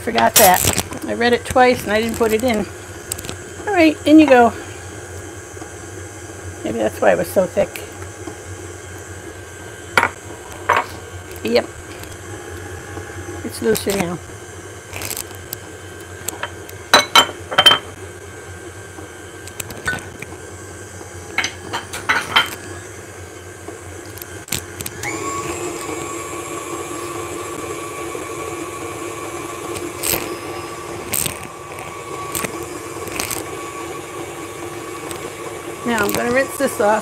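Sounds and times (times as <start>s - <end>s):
stand mixer motor whine: 0.0s - 37.0s.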